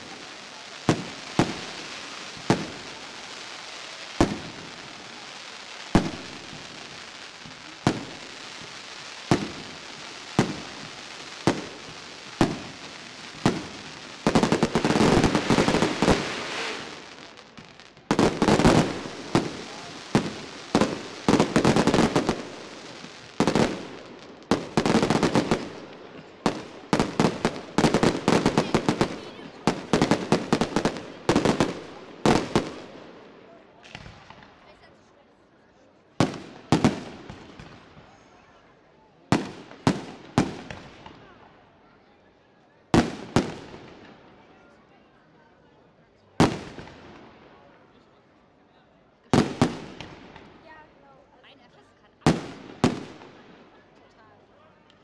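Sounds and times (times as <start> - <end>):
rapid firework salvos: 0.0 - 33.1, 49.4 - 50.6, 52.2 - 53.5.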